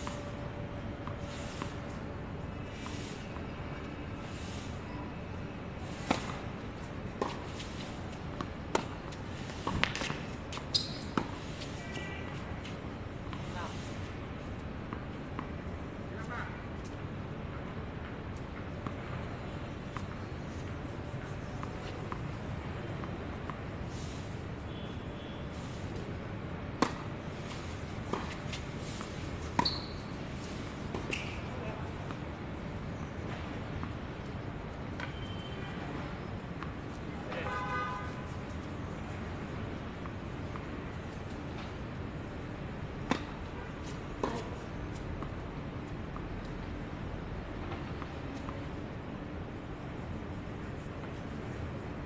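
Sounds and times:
racket hitting tennis ball: 7.2 - 11.7, 26.8 - 31.4
tennis ball struck by racket: 9.5 - 10.3, 26.8 - 27.0, 43.0 - 43.4
high squeak: 10.7 - 11.2, 29.6 - 30.1.

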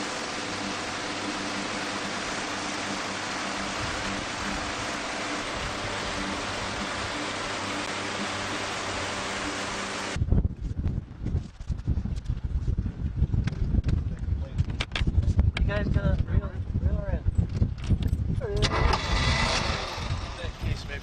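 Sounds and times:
faint boat engine hum: 0.0 - 10.2
rush of wind and water: 0.0 - 21.0.

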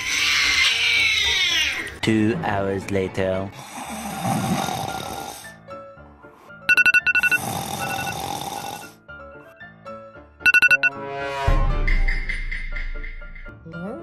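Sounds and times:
soft background music: 0.0 - 14.0
loud snores: 3.6 - 5.6, 7.2 - 9.0
rapid electronic beeping: 6.7 - 8.2, 10.5 - 10.9.

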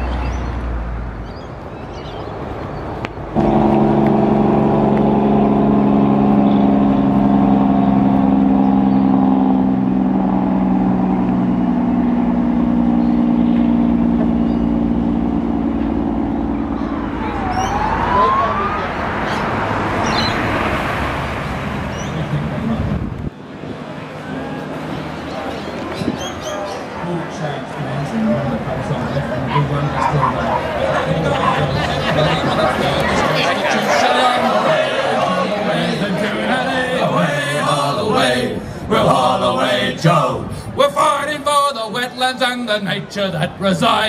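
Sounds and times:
passing road traffic: 0.0 - 44.0
truck engine droning: 3.0 - 25.9, 26.8 - 42.2.

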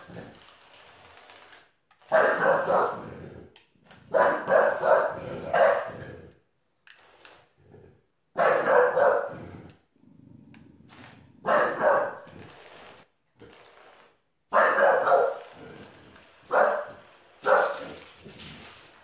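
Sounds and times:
dog barking sharply: 2.1 - 3.0, 4.1 - 6.0, 8.4 - 9.3, 11.5 - 12.3, 14.5 - 15.4, 16.5 - 17.9.

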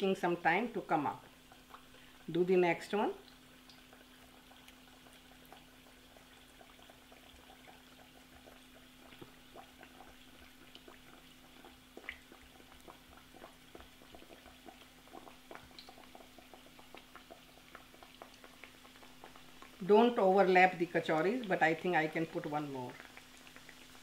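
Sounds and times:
food frying in oil: 0.0 - 24.0.

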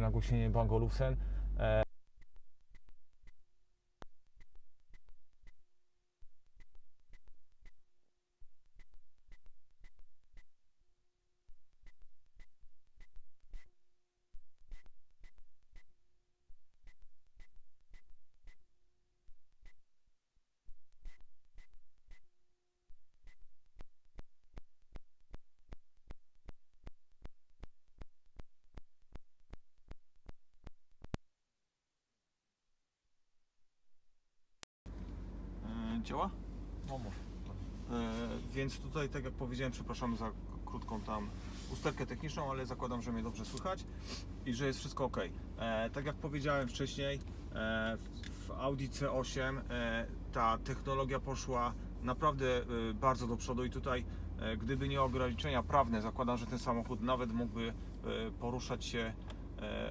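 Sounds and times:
high electronic whine: 0.0 - 31.1
faint hum tones: 0.0 - 31.2, 34.9 - 59.9
electronic microphone clicks: 1.8 - 10.7, 11.5 - 19.9, 20.6 - 31.2.

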